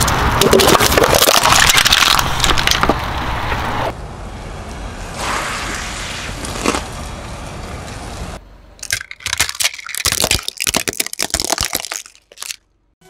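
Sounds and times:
plastic toys cracking: 0.0 - 3.0, 8.8 - 12.6
car tyre rolling on concrete: 0.0 - 8.4.

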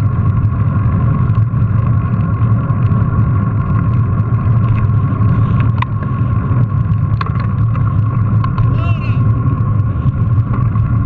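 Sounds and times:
bike tyres rumbling on paving: 0.0 - 11.0
high whine: 2.6 - 11.0.

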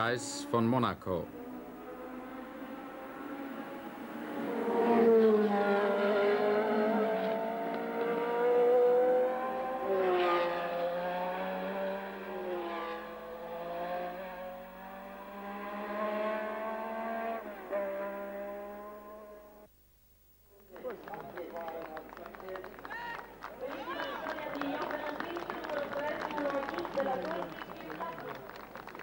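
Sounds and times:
racing car engines passing by: 0.0 - 19.7.

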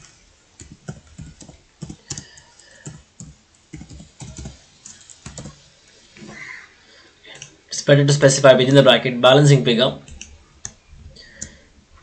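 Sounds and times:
typing on computer keyboard: 0.6 - 5.6.

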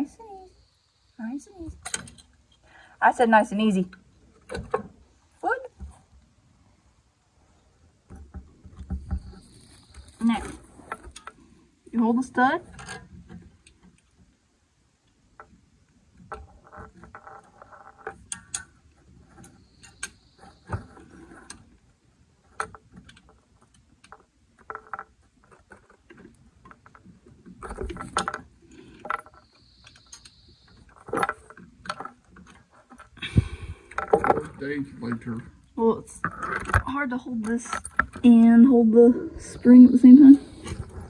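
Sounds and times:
small metal clicks and rattles: 1.7 - 2.7, 8.1 - 14.4, 15.0 - 33.2, 36.1 - 38.8.

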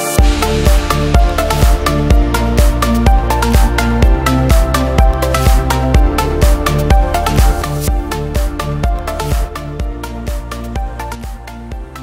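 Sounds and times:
electronic music with steady beat: 0.0 - 12.0.

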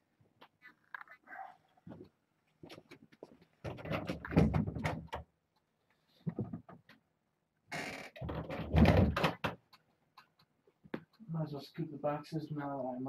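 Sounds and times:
knocking and rustling: 1.9 - 5.3, 6.2 - 7.0, 8.2 - 9.8.

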